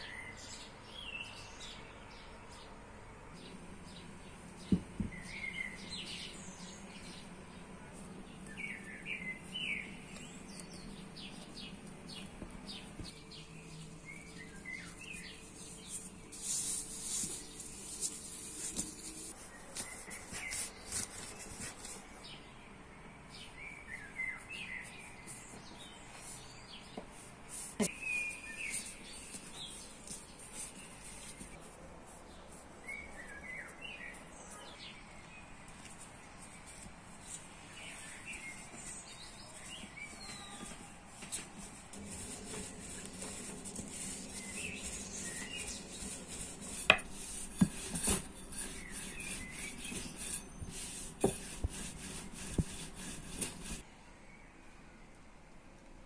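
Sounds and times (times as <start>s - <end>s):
bird chirping: 0.0s - 20.9s, 27.8s - 31.5s, 37.7s - 40.9s, 42.6s - 54.6s.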